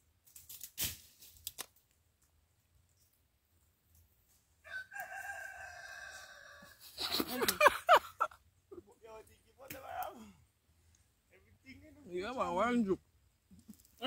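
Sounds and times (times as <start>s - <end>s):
rooster crowing: 4.6s - 6.9s.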